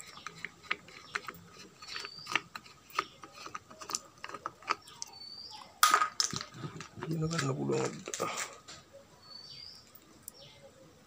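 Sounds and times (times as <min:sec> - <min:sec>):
plastic cap unscrewing clicks: 0:00.0 - 0:05.2.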